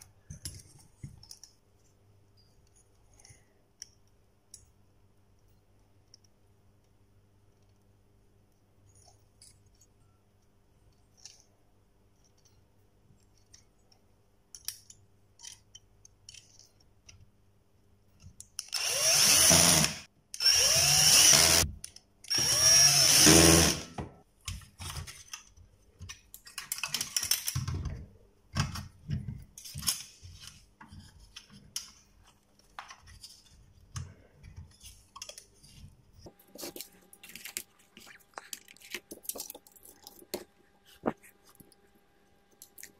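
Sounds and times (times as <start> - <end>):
drill driving screws into metal: 18.7 - 21.7, 22.3 - 24.0.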